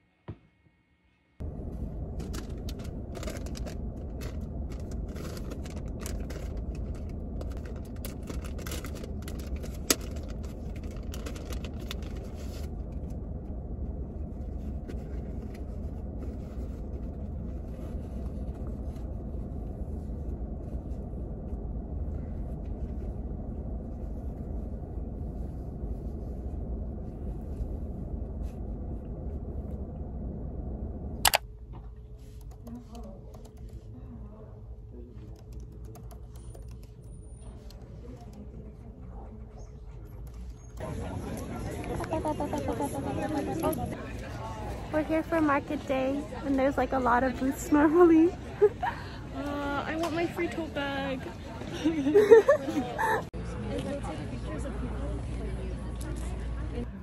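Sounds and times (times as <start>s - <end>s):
rustles of things handled: 1.4s - 29.4s
car engine rumble inside cabin: 1.4s - 44.8s.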